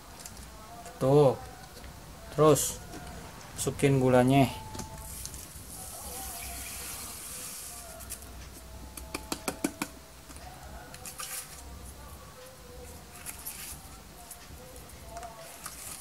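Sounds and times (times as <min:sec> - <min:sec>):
sugar pouring into a bowl: 0:05.1 - 0:07.9.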